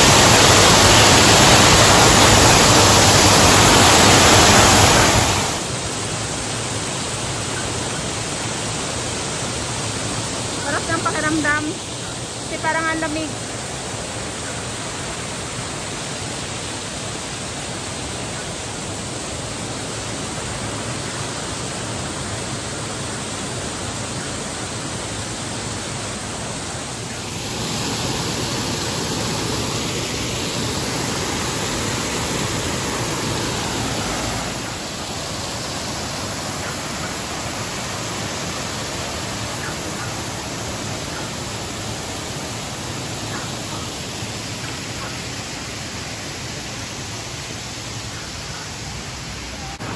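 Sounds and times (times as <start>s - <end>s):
waterfall and stream rushing: 0.0s - 49.9s.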